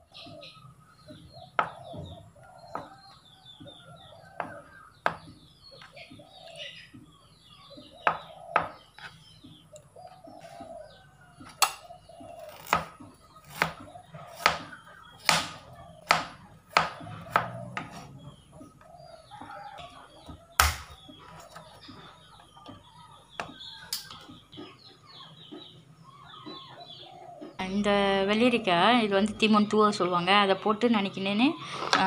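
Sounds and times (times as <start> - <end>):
birds calling faintly: 0.0 - 32.0
knife chopping on plastic board: 12.6 - 18.1, 20.2 - 20.9.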